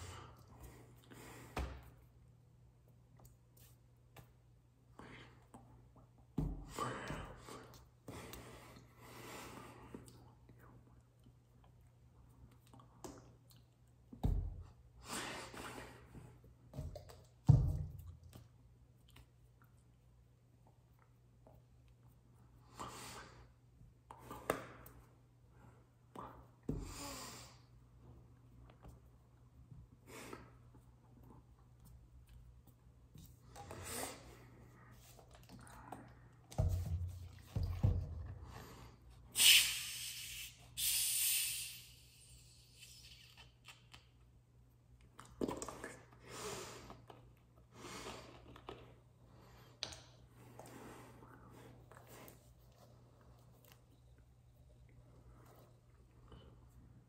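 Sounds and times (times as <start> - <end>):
low room hum: 0.0 - 40.8, 41.4 - 57.0
breath blown through pursed lips: 39.3 - 43.0
soda hissing: 39.4 - 42.4.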